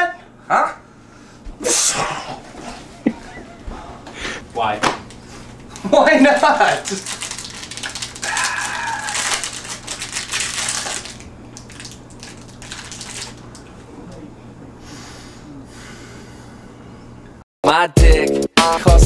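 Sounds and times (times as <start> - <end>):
wrapper crinkling: 5.1 - 13.7.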